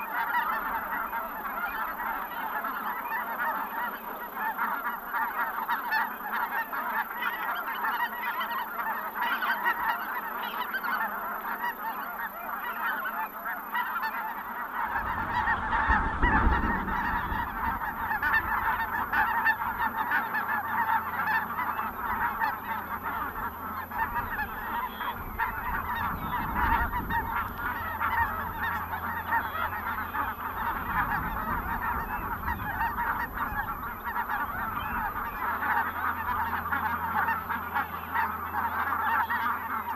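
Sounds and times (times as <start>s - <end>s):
geese honking: 0.0s - 39.9s
low rumble: 14.8s - 37.3s.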